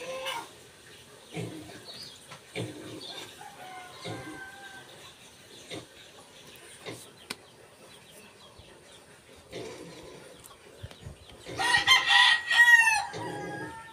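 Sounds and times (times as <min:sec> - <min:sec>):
rooster crowing: 0:03.4 - 0:04.9, 0:11.6 - 0:13.9.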